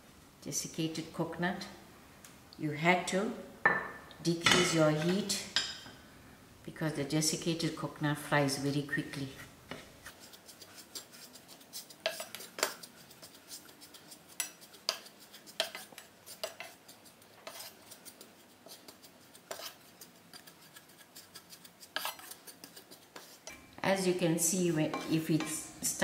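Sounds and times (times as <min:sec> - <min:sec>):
wooden spatula scraping frying pan: 0:09.2 - 0:23.6.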